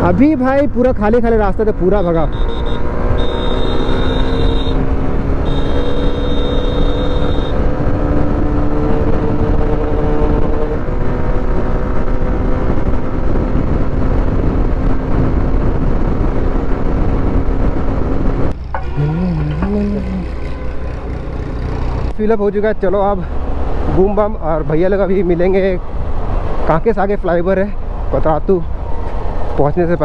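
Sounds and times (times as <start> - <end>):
motorcycle engine cruising: 2.0 - 16.1, 17.5 - 24.1
wind noise on microphone: 2.8 - 22.1.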